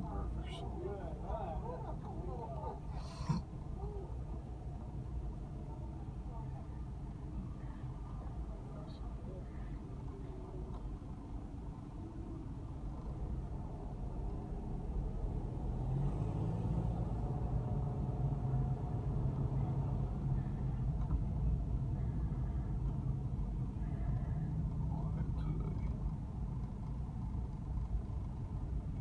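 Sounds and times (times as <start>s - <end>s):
car cabin engine rumble: 18.3s - 29.0s.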